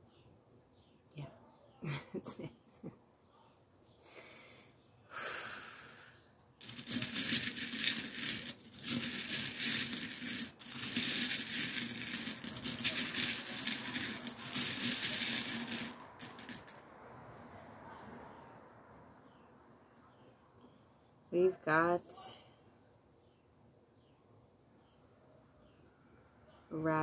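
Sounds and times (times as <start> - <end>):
metal charms jingling in glass dish: 6.6 - 16.8.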